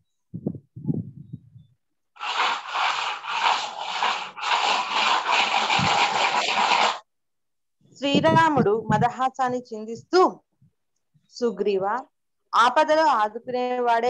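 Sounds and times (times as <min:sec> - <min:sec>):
loud rough rasping noise: 0:02.2 - 0:07.0.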